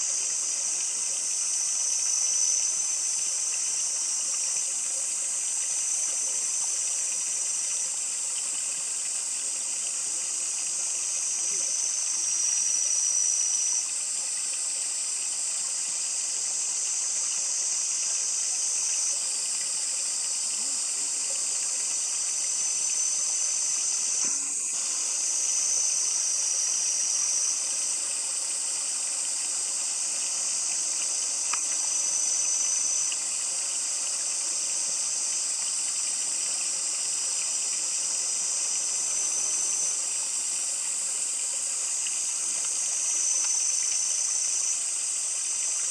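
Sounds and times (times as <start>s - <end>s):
insect chorus: 0.0s - 45.9s
thin high insect note: 22.6s - 27.6s.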